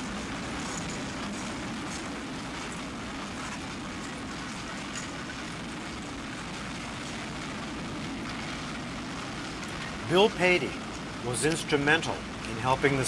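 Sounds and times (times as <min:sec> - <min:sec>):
train wheels on rails: 0:00.0 - 0:08.6.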